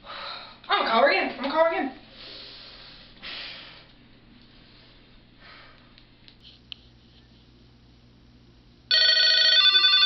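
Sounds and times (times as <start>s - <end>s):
soft breath: 2.1s - 3.9s, 4.5s - 6.0s.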